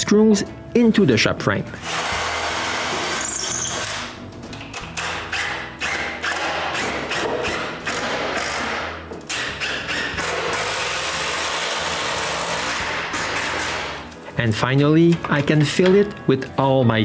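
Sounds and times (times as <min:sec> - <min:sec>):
drill driving screws into wood: 0:01.8 - 0:04.2, 0:04.8 - 0:14.1.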